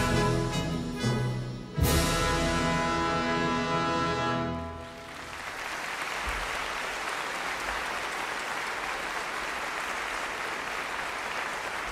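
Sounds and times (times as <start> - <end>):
audience applauding: 4.8 - 11.9.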